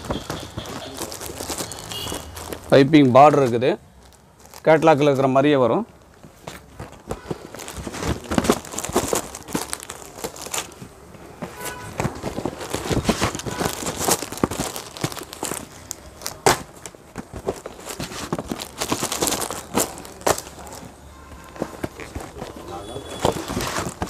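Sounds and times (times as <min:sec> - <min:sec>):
plastic covers crinkling: 0:00.0 - 0:24.0.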